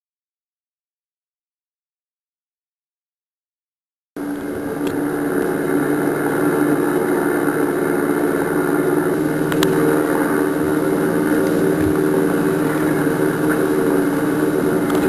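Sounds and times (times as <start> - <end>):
engine drone: 4.2 - 15.0.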